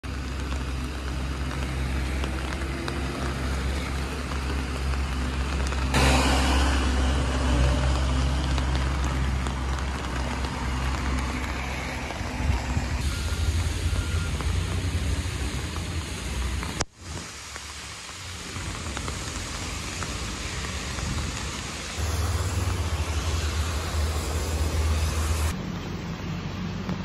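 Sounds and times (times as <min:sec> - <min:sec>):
street traffic noise: 0:00.0 - 0:27.0
low engine hum: 0:18.6 - 0:27.0.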